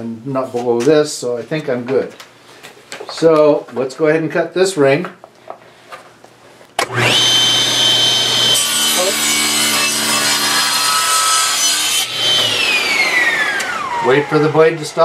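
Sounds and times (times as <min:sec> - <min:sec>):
saw blade cutting wood: 0:06.8 - 0:15.0
table saw motor whine: 0:06.8 - 0:15.0.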